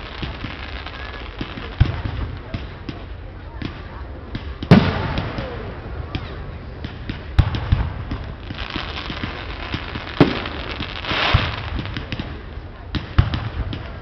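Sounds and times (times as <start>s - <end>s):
crackling firework stars: 0.0s - 14.0s
firework bangs: 0.0s - 14.0s
firework thumps: 1.4s - 14.0s.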